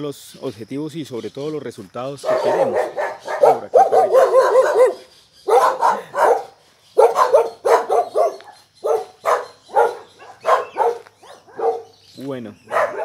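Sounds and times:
dog yips: 2.2s - 11.9s, 12.7s - 13.0s
dogs barking: 2.2s - 12.0s, 12.6s - 13.0s.

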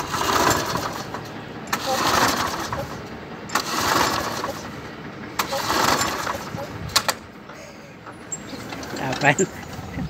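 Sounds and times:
lawnmower recoil cord pull: 0.0s - 4.7s, 5.4s - 7.2s, 8.4s - 9.4s
lawnmower engine turning over: 0.0s - 10.0s.

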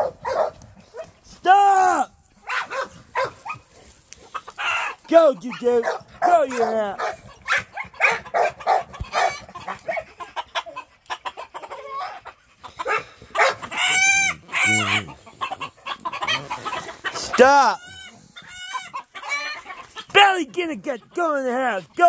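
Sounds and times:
roosters clucking and squawking: 0.0s - 1.4s, 2.2s - 22.0s
rooster drawn-out cry: 13.8s - 15.2s.

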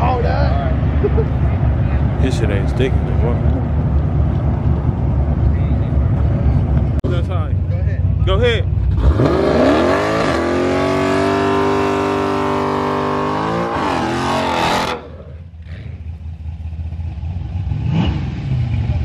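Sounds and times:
car engine revving high: 8.9s - 16.0s.

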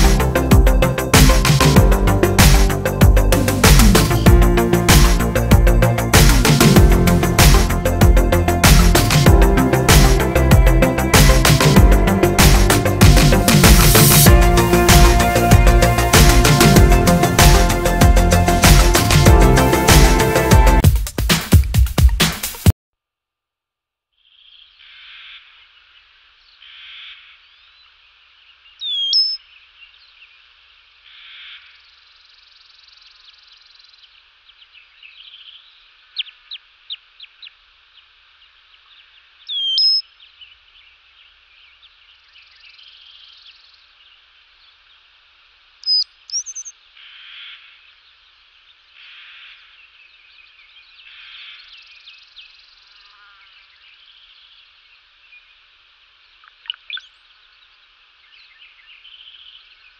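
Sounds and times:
background bird chorus: 24.2s - 59.9s
bird calls and chirps: 26.4s - 30.4s, 31.1s - 45.1s, 45.8s - 55.6s, 56.3s - 59.9s
sweeping whistled bird calls: 28.7s - 30.1s, 39.4s - 40.4s, 45.8s - 46.8s, 56.4s - 59.7s
quick run of short chirps: 45.9s - 46.7s.

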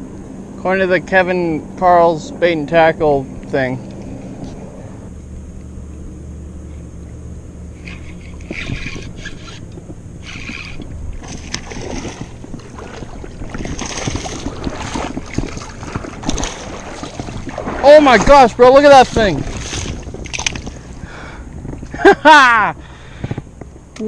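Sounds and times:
wind rumbling on microphone: 0.0s - 24.0s
fishing reel clicks and scrapes: 7.8s - 12.2s.

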